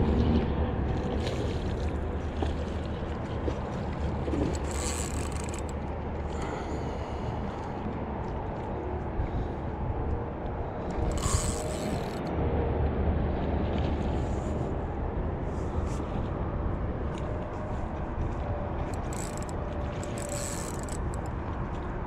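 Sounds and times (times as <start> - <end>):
steady low rumble: 0.0 - 22.0
fishing reel clicking: 4.5 - 5.8, 10.9 - 12.3, 18.9 - 21.3.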